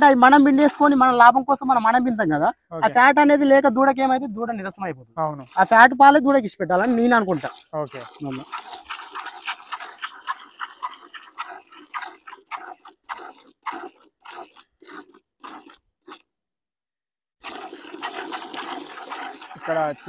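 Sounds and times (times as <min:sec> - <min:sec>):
milk squirting into plastic bucket: 0:06.8 - 0:16.2, 0:17.4 - 0:20.0.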